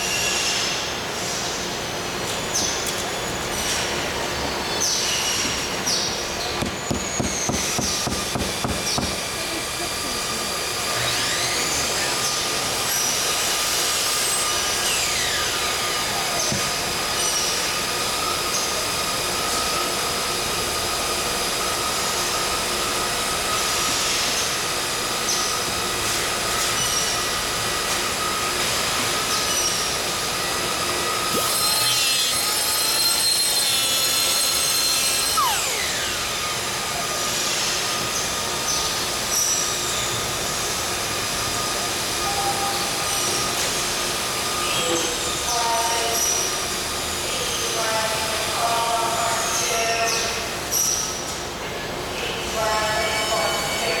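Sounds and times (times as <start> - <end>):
factory machinery noise: 0.0 - 54.0
high-pitched machine tones: 30.8 - 37.7
falling squeal: 31.4 - 36.3.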